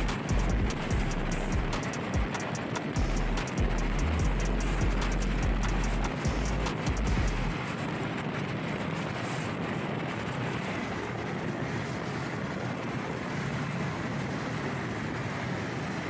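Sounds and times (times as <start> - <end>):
scooter tyre and road noise: 0.0 - 16.0.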